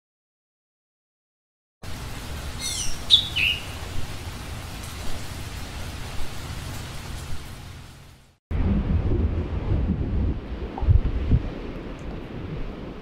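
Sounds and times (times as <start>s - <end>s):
bird chirping: 2.6s - 3.8s.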